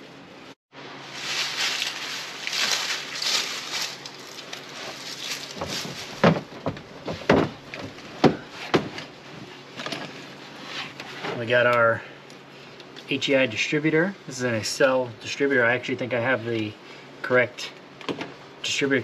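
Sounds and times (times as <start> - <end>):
scuffing and rustling: 1.0 - 9.7
sharp thumps on truck bed: 5.6 - 9.0.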